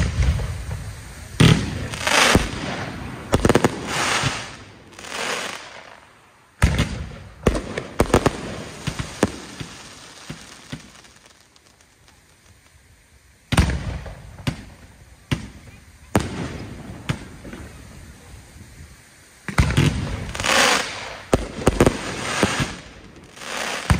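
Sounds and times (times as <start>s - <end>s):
fireworks bangs: 0.0s - 23.9s
fireworks hissing and crackling: 0.0s - 23.9s.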